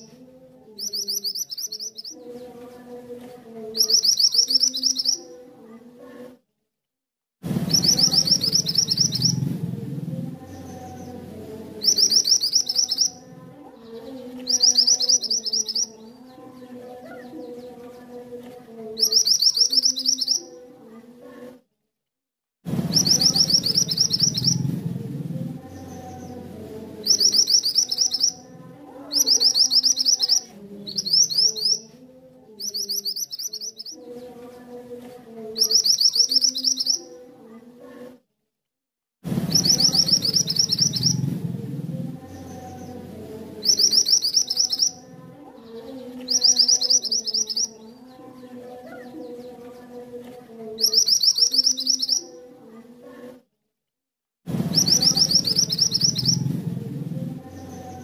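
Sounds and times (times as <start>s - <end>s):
bird singing high rapid trills: 0.8s - 2.2s, 3.8s - 5.4s, 7.6s - 9.6s, 10.4s - 13.3s, 13.9s - 16.1s, 19.0s - 20.6s, 22.8s - 24.8s, 25.6s - 28.5s, 29.1s - 32.0s, 32.6s - 34.0s, 35.6s - 37.2s, 39.4s - 41.4s, 42.2s - 45.1s, 45.7s - 48.0s, 50.8s - 52.3s, 54.6s - 56.6s.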